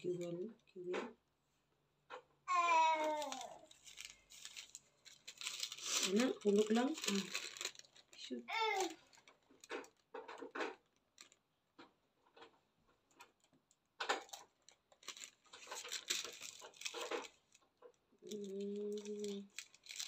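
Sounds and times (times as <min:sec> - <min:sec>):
plastic rustling: 0:00.0 - 0:01.2, 0:02.1 - 0:20.0.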